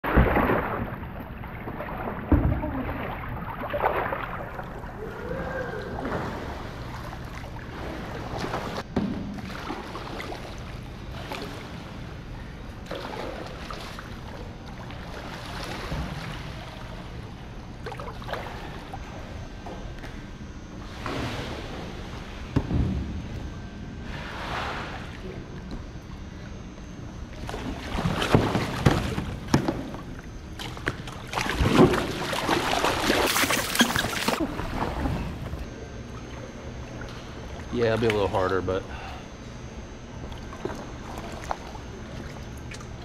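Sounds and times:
water splashing and lapping: 0.0 - 19.2, 27.3 - 37.7, 40.2 - 43.0
kayak thump: 28.2 - 30.1.

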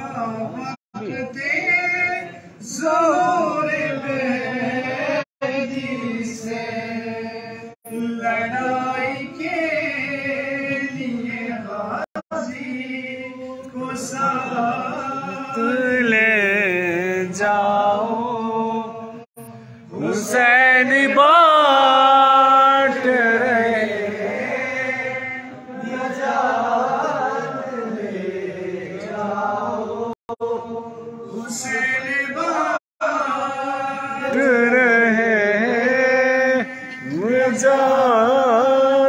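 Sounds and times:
man chanting: 12.4 - 18.8, 19.9 - 25.4, 31.4 - 39.0.

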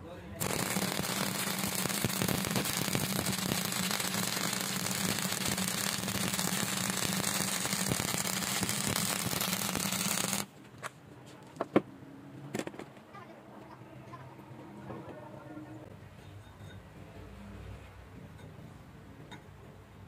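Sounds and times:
welding arc crackling: 0.4 - 10.5.

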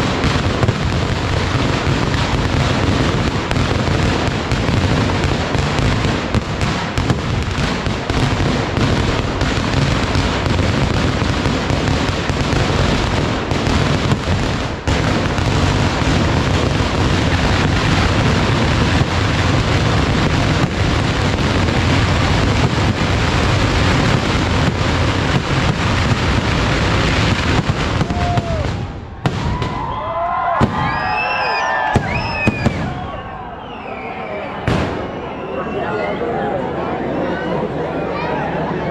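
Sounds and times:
firecracker bangs: 0.0 - 33.3, 34.6 - 35.4
whistling glides: 30.9 - 36.2.

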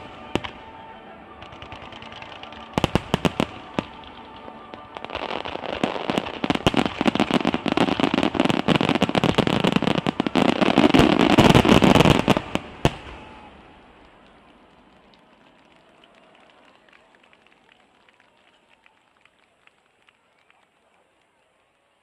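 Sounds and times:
fireworks bangs: 0.0 - 15.4
fireworks crackling: 0.0 - 16.6.

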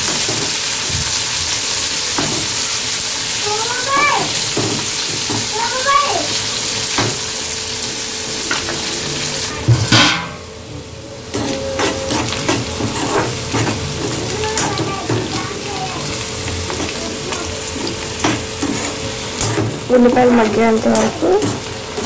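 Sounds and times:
onions sizzling in hot oil: 0.0 - 22.0
metal spatula scraping a pan: 11.3 - 14.9, 18.2 - 21.6.

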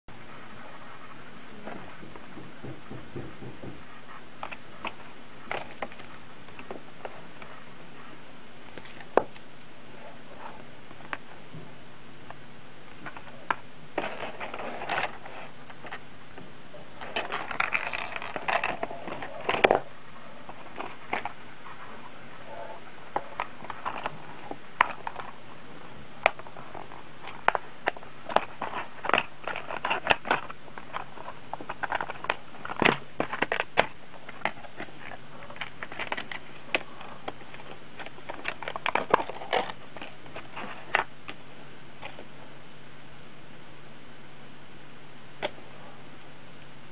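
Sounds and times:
steady background hiss: 0.1 - 46.9
plastic packaging crinkling: 26.2 - 41.1.

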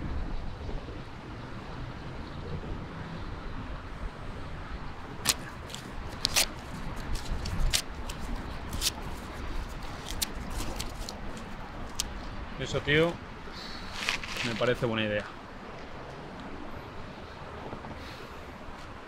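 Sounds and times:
small objects clicking and rustling: 5.2 - 12.3.

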